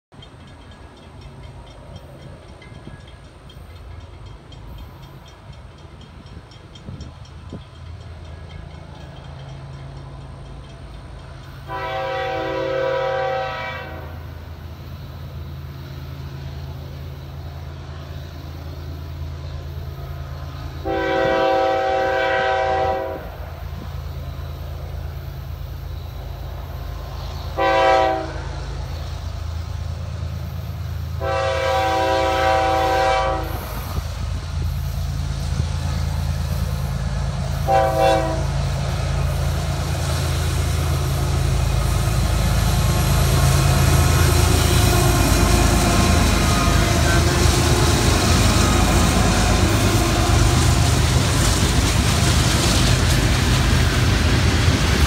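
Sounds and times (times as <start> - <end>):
locomotive engine drone: 0.1 - 55.0
train air horn: 11.6 - 14.4, 20.8 - 23.4, 27.5 - 28.6, 31.2 - 34.0, 37.5 - 38.6, 44.2 - 50.8.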